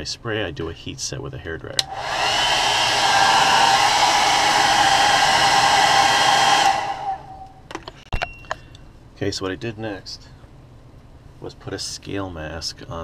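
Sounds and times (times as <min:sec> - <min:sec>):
hair dryer running: 0:01.8 - 0:07.6.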